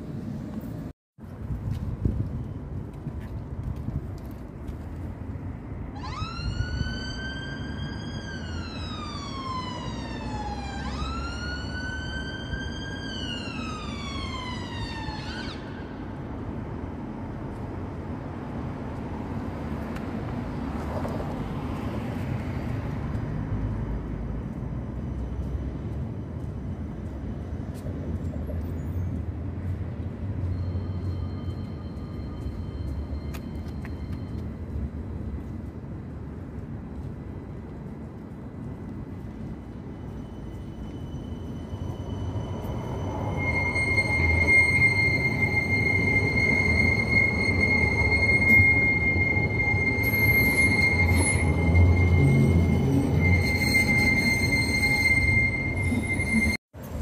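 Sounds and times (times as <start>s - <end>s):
low traffic rumble: 0.0s - 57.0s
tram whine: 0.0s - 57.0s
emergency vehicle siren wailing: 5.7s - 16.3s, 40.1s - 56.6s.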